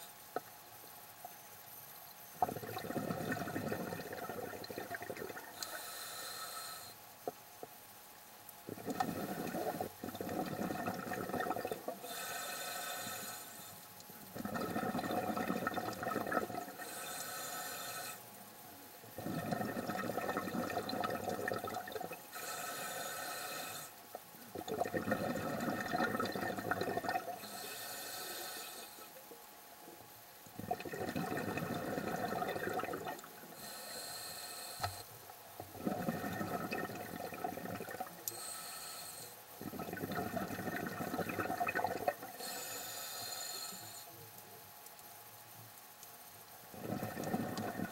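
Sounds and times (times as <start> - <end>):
exhaled bubbles underwater: 2.4 - 5.6, 8.7 - 12.1, 14.3 - 16.9, 19.1 - 22.4, 24.2 - 27.6, 30.6 - 33.7, 35.6 - 38.3, 39.6 - 42.4, 46.7 - 47.9
regulator inhale hiss: 5.5 - 7.0, 12.0 - 13.9, 16.7 - 19.4, 22.2 - 24.2, 27.4 - 29.3, 31.8 - 35.2, 38.1 - 39.8, 42.3 - 44.4.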